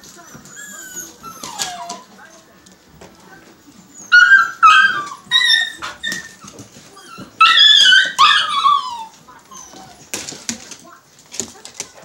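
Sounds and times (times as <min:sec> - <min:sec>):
dogs yelping and whining: 0:00.2 - 0:02.4, 0:03.7 - 0:10.2.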